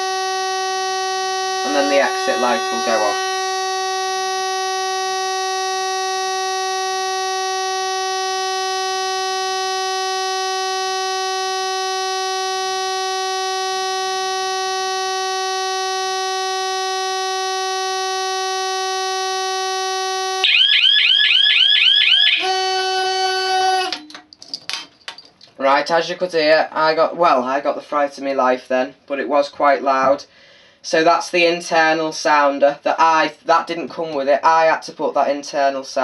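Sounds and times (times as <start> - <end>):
alarm panel buzzer steady tone: 0.0 - 24.1
alarm sounder fast warble: 1.4 - 3.6, 20.4 - 22.6.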